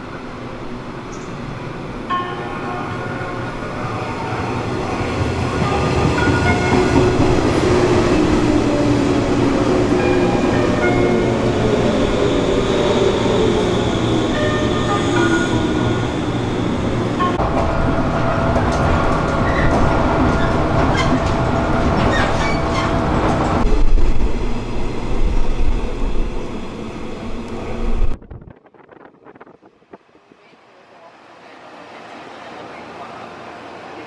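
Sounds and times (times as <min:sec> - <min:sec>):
outdoor platform ambience: 0:00.0 - 0:34.0
rumble inside moving train: 0:17.0 - 0:34.0.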